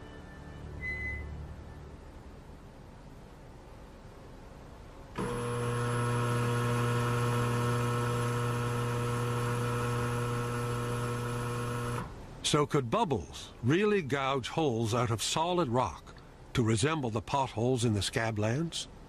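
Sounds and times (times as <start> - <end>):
ultrasonic horn buzzing hum: 0.0 - 2.0, 5.2 - 12.1.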